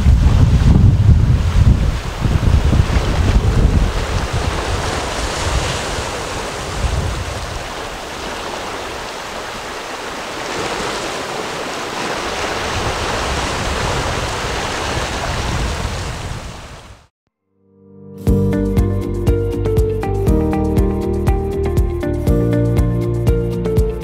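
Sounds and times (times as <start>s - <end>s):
sea waves breaking on rocks: 0.0s - 16.9s
wind on microphone: 0.0s - 17.1s.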